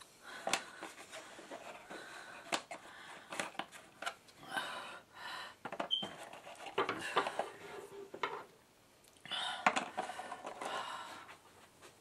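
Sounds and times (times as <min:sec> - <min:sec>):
man breathing: 0:00.1 - 0:03.6, 0:04.4 - 0:05.6, 0:09.2 - 0:11.5.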